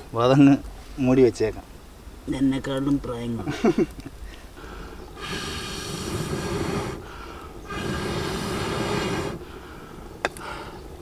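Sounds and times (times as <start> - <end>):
blowing through a blowpipe: 5.2 - 9.5.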